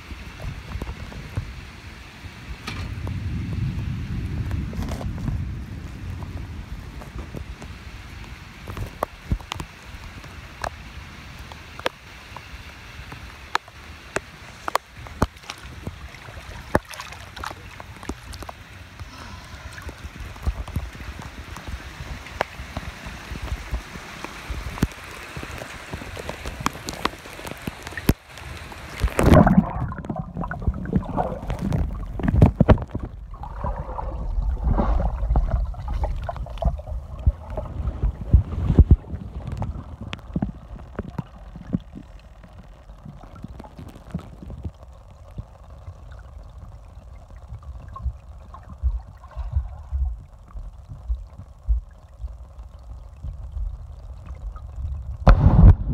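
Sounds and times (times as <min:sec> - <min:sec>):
rain falling on a pool: 0:00.0 - 0:55.9
underwater sloshing and gurgling: 0:00.0 - 0:55.9.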